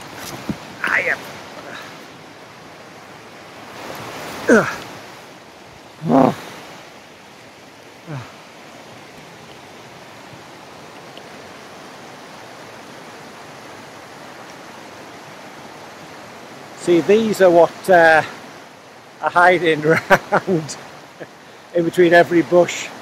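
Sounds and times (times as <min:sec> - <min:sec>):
stream and waterfall rushing: 0:00.0 - 0:23.0
man grunting: 0:04.4 - 0:04.8, 0:06.0 - 0:06.5, 0:08.1 - 0:08.4.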